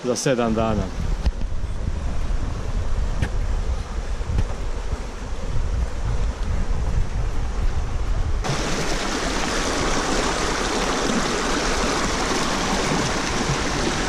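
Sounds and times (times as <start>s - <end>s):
wind rumble on microphone: 0.4s - 14.0s
river rushing over rocks: 8.4s - 14.0s.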